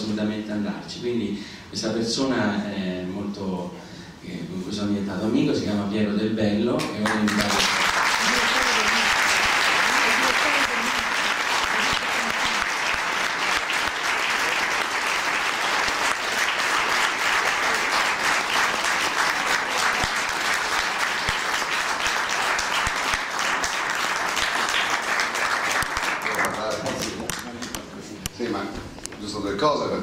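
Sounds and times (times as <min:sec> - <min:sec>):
large audience applauding: 0:07.0 - 0:27.8.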